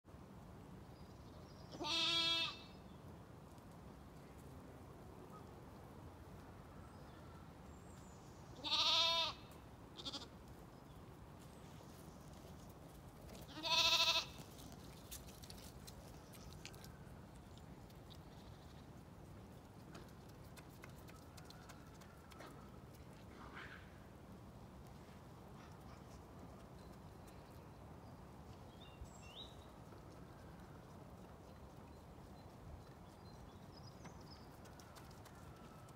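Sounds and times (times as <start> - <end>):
sheep bleating: 1.8 - 2.6, 8.6 - 9.4, 10.0 - 10.3, 13.5 - 14.4.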